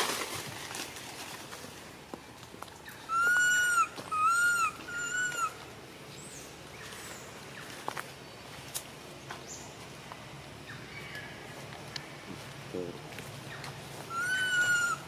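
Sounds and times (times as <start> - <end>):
baby monkey crying: 3.1 - 5.6, 14.1 - 15.0.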